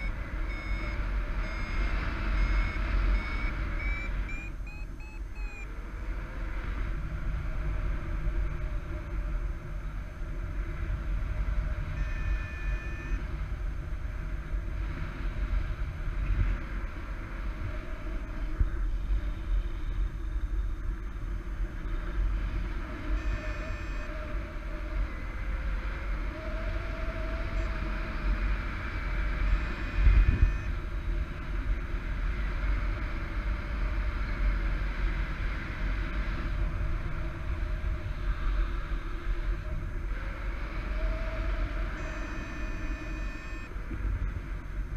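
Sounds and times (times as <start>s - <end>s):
short high electronic beeps: 0.0s - 5.6s, 12.0s - 13.2s, 23.2s - 24.1s, 42.0s - 43.7s
wind rushing over microphone: 24.2s - 42.0s.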